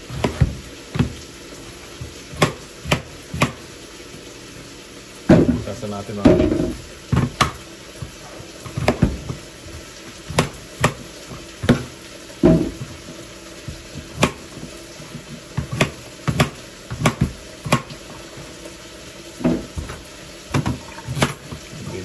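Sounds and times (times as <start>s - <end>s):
knife chopping on cutting board: 2.4s - 3.6s, 10.3s - 11.0s, 13.7s - 14.4s, 15.6s - 18.0s.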